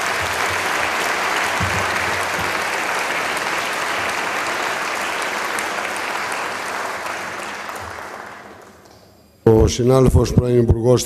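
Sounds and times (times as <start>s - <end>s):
audience applause: 0.0s - 8.9s.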